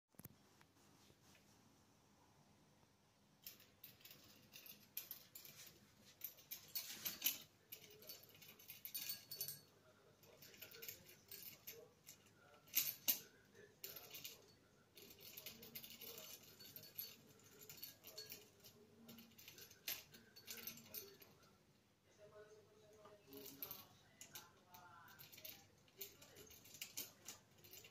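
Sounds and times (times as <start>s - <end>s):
small bell jingles: 3.6s - 9.7s, 10.3s - 21.5s, 23.0s - 27.9s.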